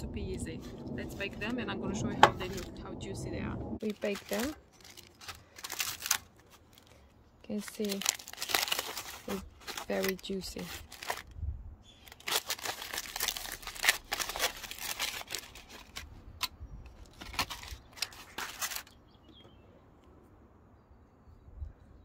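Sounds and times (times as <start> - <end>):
aluminium foil crinkling and tearing: 2.4 - 2.8, 3.8 - 11.4, 12.0 - 19.0.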